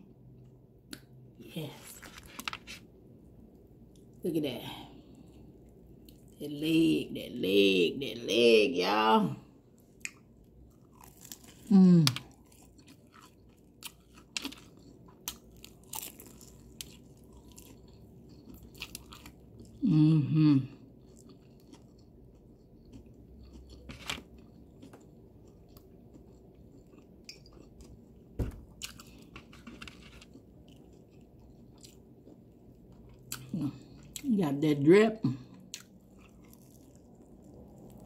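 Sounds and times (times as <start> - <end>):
chewing crispy chicken: 9.7 - 34.4, 35.3 - 38.0.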